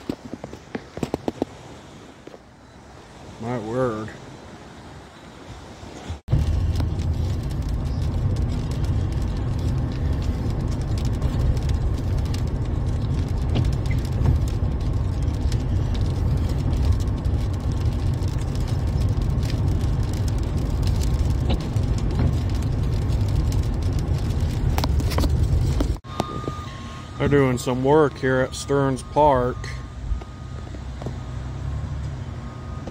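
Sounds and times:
truck driving heard from cab: 6.0 - 32.9.

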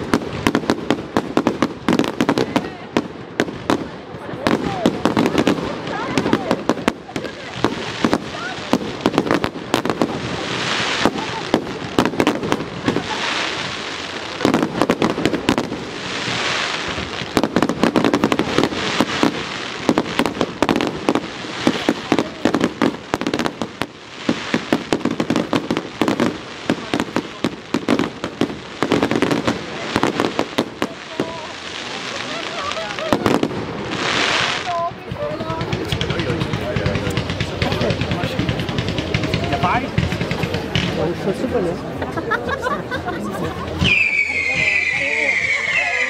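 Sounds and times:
hiss of firework bursts: 0.0 - 41.4
fireworks bangs: 0.0 - 42.2, 43.6 - 46.0.

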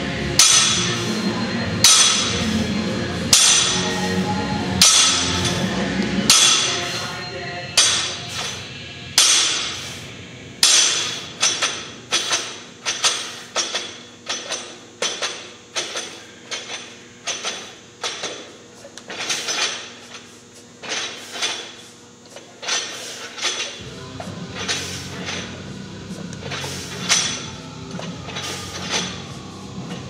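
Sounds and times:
barbell plates clinking and knocking: 6.3 - 6.9.

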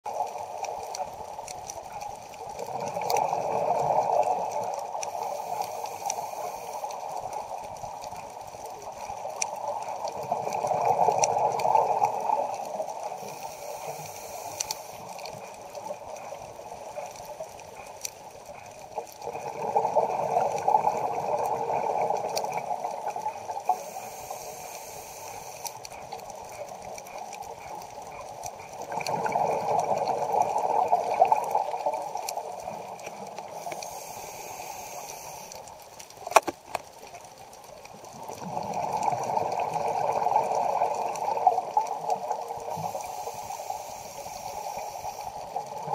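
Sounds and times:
exhaled bubbles gurgling underwater: 0.1 - 45.9
regulator inhale hiss: 5.1 - 7.2, 13.2 - 15.1, 23.6 - 25.9, 33.5 - 35.7, 42.7 - 45.6.

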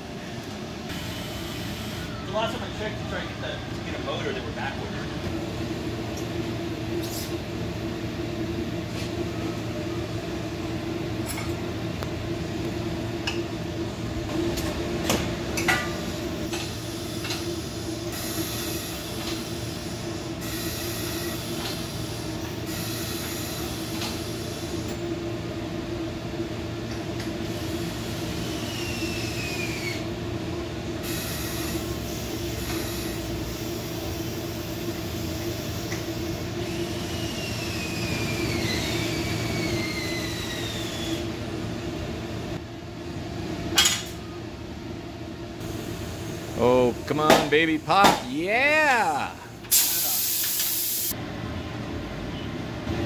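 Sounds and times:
hiss: 16.7 - 24.9, 31.0 - 41.2, 49.7 - 51.2
short falling squeal: 37.2 - 41.3.

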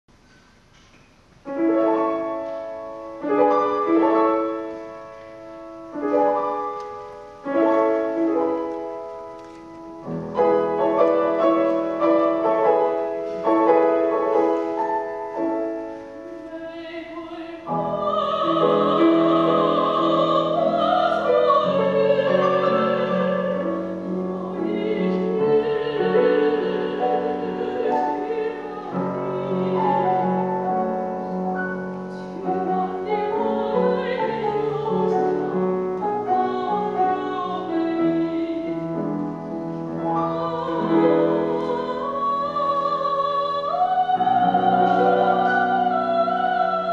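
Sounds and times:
grand piano chords: 0.1 - 46.9
woman singing operatically: 16.2 - 31.0, 32.2 - 38.9, 40.0 - 46.9.

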